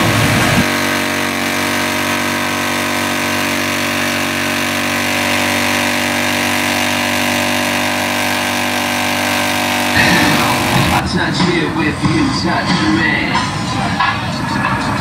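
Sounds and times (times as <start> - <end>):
motorcycle engine at steady revs: 0.0 - 11.0.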